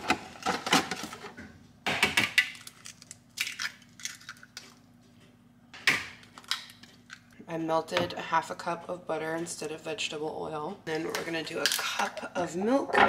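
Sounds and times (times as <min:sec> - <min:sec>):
eggs cracking against bowl: 0:02.0 - 0:04.8, 0:06.0 - 0:07.4.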